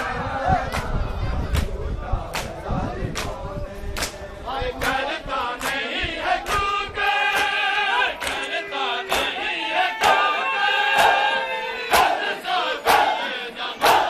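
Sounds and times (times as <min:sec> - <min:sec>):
crowd of men chanting: 0:00.0 - 0:14.0
hands slapping bare chests: 0:02.3 - 0:03.4, 0:04.0 - 0:04.2, 0:05.6 - 0:06.6.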